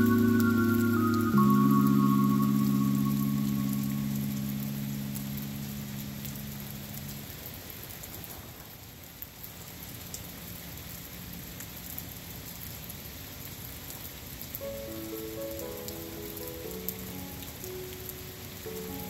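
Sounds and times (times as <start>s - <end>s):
soft held music notes: 0.0s - 7.5s, 14.6s - 19.0s
steady rain falling: 0.0s - 19.0s.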